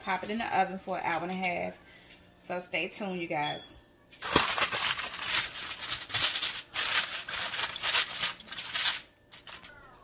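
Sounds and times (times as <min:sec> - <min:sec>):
aluminum foil crinkling: 0:04.2 - 0:10.0.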